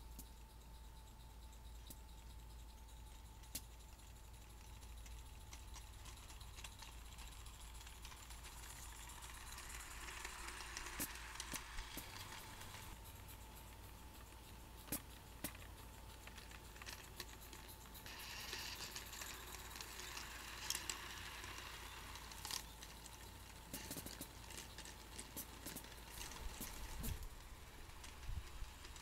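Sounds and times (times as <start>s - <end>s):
model train wheel clicks: 3.4s - 13.0s, 13.7s - 29.0s
model train rolling hiss: 6.5s - 13.3s, 16.8s - 29.0s.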